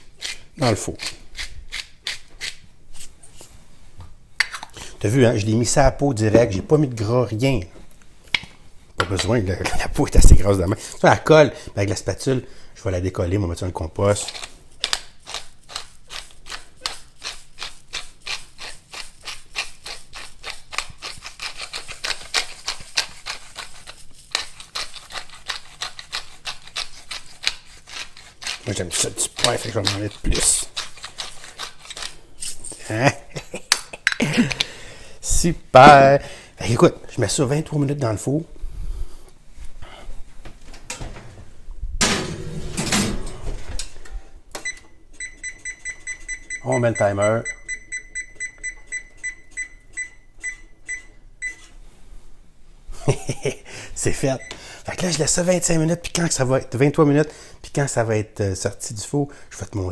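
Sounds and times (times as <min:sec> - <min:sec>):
pepper mill grinding: 0:00.0 - 0:03.5, 0:14.0 - 0:33.1
oven door opening and shutting: 0:42.0 - 0:44.2
oven beep: 0:44.6 - 0:51.7, 0:54.4 - 0:54.6.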